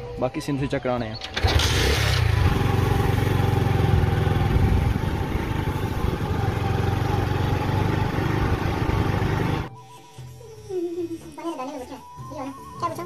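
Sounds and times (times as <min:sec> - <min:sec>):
motorcycle engine running: 0:01.4 - 0:09.7.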